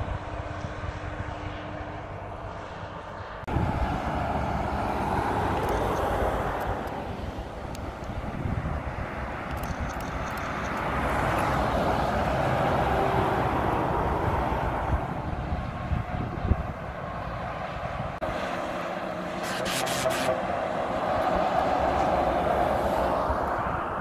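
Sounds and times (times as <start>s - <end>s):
wind buffeting microphone: 0.0s - 18.4s
trucks passing on motorway: 0.0s - 24.0s.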